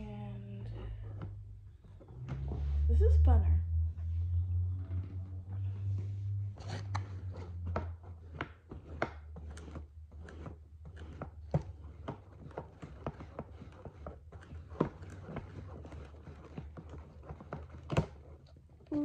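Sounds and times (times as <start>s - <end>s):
steady low hum: 0.0s - 11.8s.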